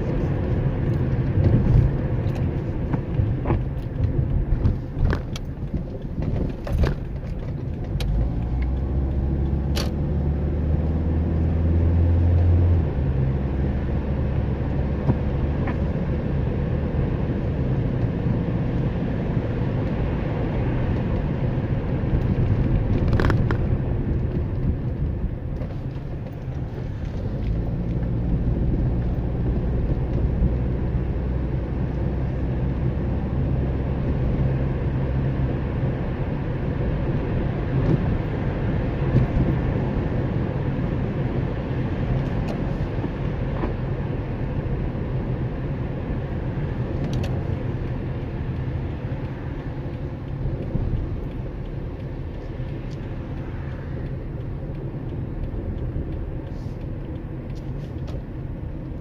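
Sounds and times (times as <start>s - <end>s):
car engine and road noise: 0.0s - 59.0s
sharp ticks and knocks: 47.0s - 59.0s.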